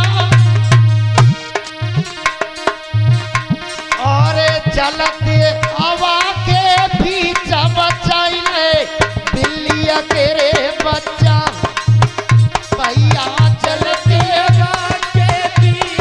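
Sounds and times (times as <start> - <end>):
hand drum beat: 0.0 - 16.0
man singing folk song: 4.0 - 11.8, 12.7 - 16.0.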